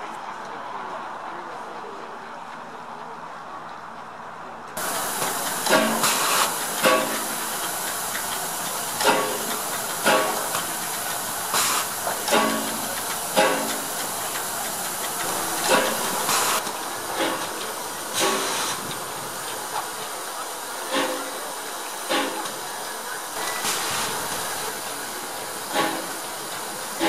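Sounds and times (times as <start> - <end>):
steam locomotive hissing: 4.8 - 27.0.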